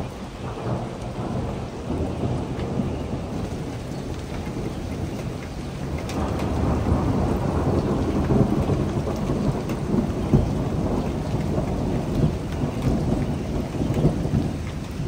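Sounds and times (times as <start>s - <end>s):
rain falling: 0.0s - 15.0s
thunder rumbling: 0.0s - 15.0s.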